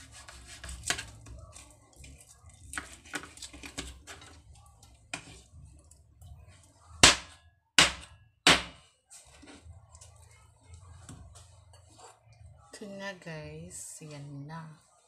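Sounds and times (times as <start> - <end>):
knife chopping on cutting board: 7.0 - 8.8.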